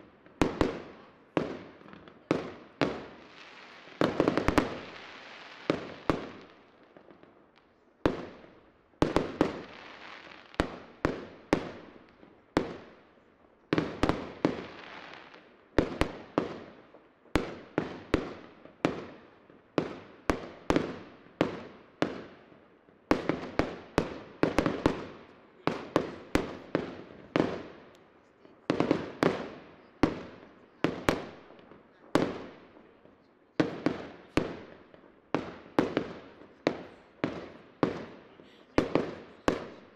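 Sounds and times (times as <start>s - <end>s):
firework bangs with echo: 23.1s - 27.9s, 33.6s - 38.2s, 38.8s - 39.9s.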